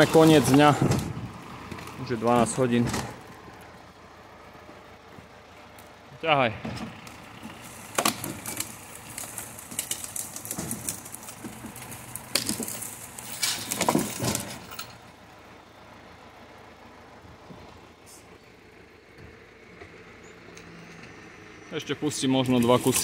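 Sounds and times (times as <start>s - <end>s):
logs dragged through undergrowth: 0.0s - 6.0s, 6.9s - 14.8s, 22.1s - 23.0s
branches snapping and rustling: 6.9s - 14.7s, 22.4s - 23.0s.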